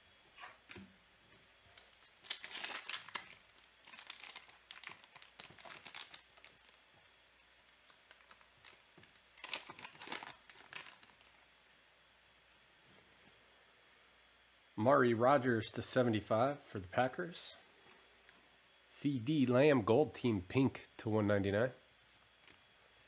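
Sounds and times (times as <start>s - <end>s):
foil wrapper tearing and crinkling: 1.7s - 11.4s.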